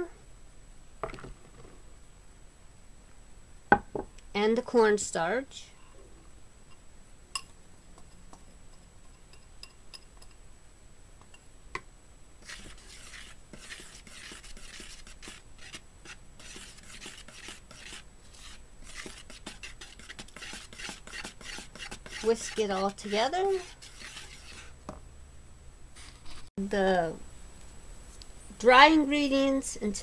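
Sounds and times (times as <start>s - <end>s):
whisk stirring flour in bowl: 12.4s - 24.8s.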